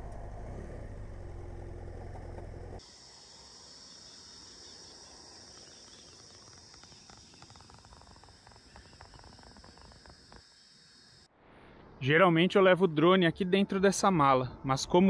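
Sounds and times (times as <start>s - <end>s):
insects chirring: 2.8s - 11.3s.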